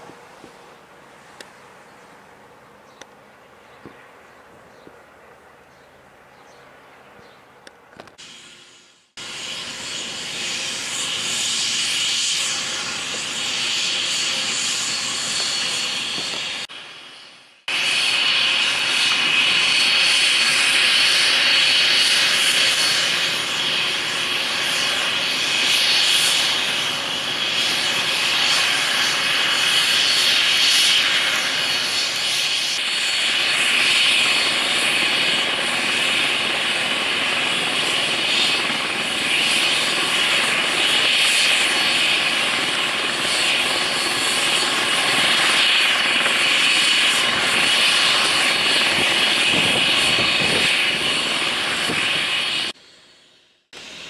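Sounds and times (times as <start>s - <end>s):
helicopter turbine whine and rotor: 0.0s - 54.0s.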